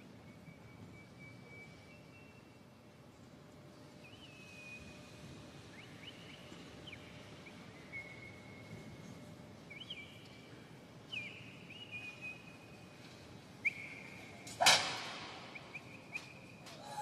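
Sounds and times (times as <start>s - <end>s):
loud sharp crack: 14.6s - 15.6s.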